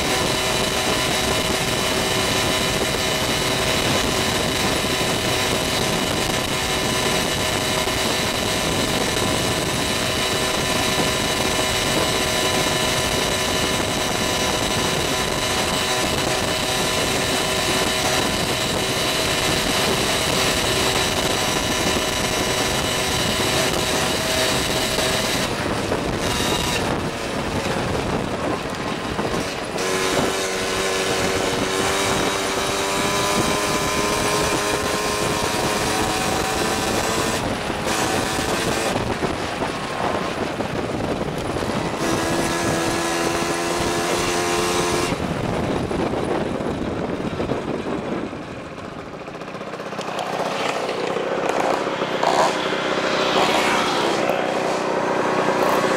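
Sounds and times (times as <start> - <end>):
moped engine running: 0.0 - 55.9
wind and road noise: 0.0 - 55.9.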